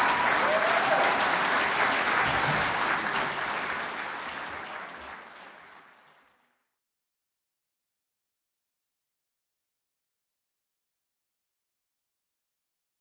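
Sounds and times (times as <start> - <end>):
audience clapping: 0.0 - 6.8.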